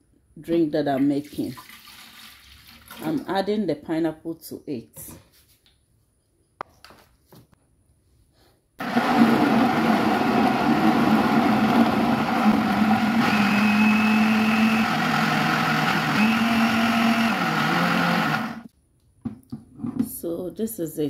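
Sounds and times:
blender motor running: 8.8 - 18.7.

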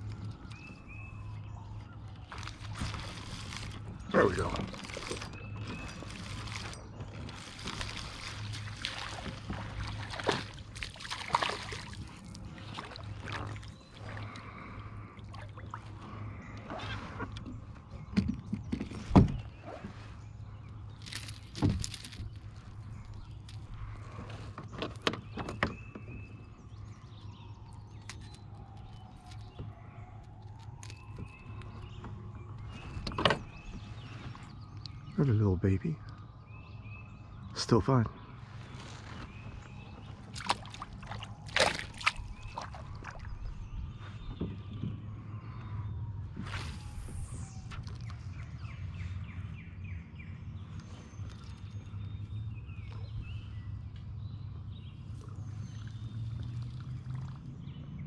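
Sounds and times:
fish splashing and thrashing: 0.0 - 25.8, 26.8 - 34.8, 38.9 - 43.9, 55.1 - 57.6
water sloshing against hull: 0.0 - 35.2, 38.1 - 58.0
knocks and clicks in plastic kayak: 17.2 - 19.6, 21.5 - 26.8, 30.4 - 33.9, 44.1 - 45.8.

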